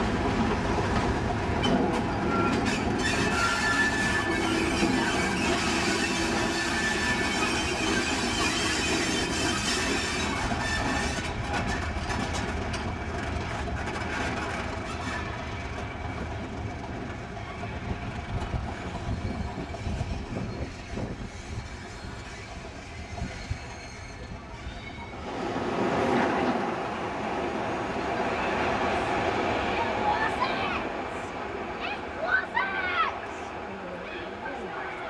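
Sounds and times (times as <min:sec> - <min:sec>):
steam locomotive rushing: 0:00.0 - 0:35.0
train wheels squealing: 0:01.6 - 0:12.2, 0:14.7 - 0:16.4, 0:17.3 - 0:25.3
wheels clicking over rail joints: 0:07.9 - 0:19.7.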